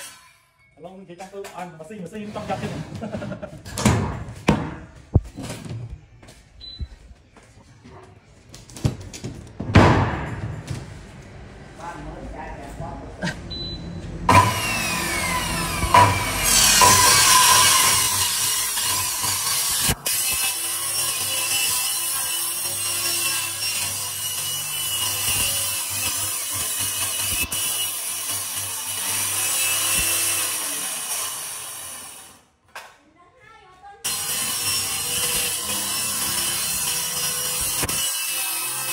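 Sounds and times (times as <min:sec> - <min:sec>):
circular saw cutting plywood: 0:14.3 - 0:32.4, 0:34.1 - 0:38.9.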